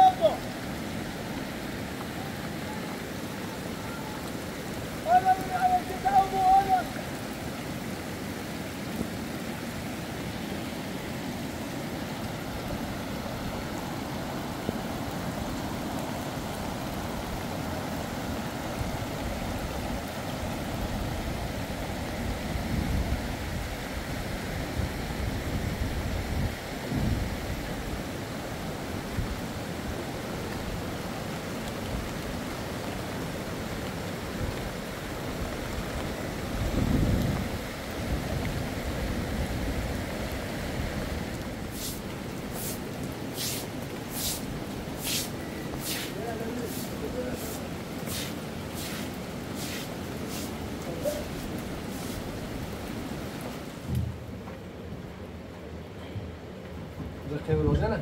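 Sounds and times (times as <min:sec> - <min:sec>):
heavy rain: 0:00.0 - 0:58.0
rushing water: 0:00.0 - 0:58.0.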